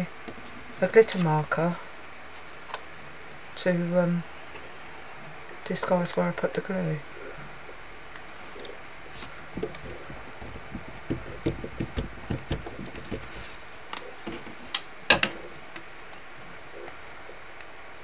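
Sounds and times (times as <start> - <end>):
fingers tapping card on wood: 9.5 - 13.5.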